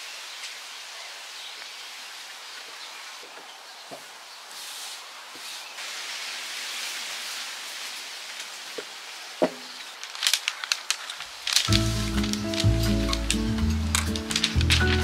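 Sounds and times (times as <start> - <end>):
hands brushing fabric: 4.5 - 5.7
crisp crinkling rustles: 6.9 - 15.0.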